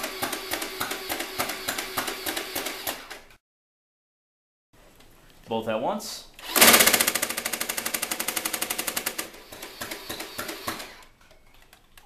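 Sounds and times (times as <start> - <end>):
toy blaster rapid shots: 6.4 - 11.0.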